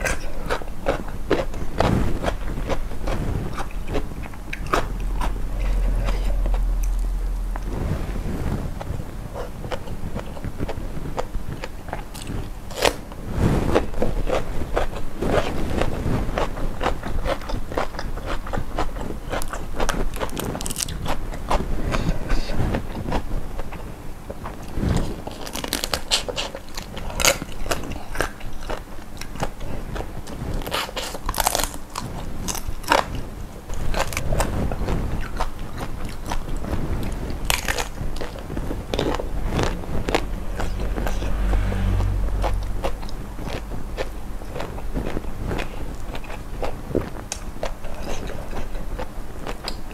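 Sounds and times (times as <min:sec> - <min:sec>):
crunchy bites and chewing: 0:09.4 - 0:13.0, 0:13.8 - 0:21.6, 0:25.0 - 0:49.9.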